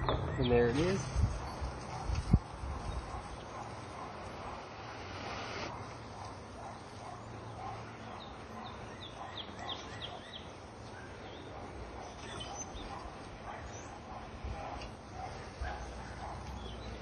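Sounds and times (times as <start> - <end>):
bird chirping: 0.0 - 2.0, 6.7 - 14.2, 15.6 - 17.0.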